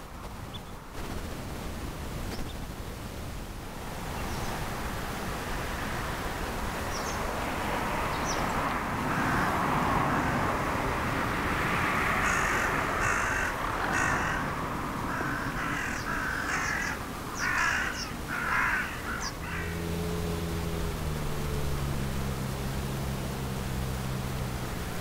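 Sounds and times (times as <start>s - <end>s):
steady outdoor hiss: 0.0s - 25.0s
harsh bird calls: 12.1s - 20.0s.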